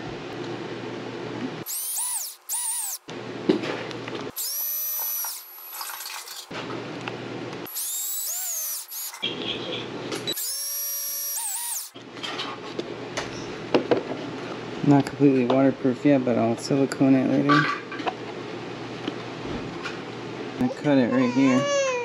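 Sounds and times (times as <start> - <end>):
cordless drill whining: 1.6 - 3.0, 4.3 - 5.8, 7.7 - 9.2, 10.3 - 12.0.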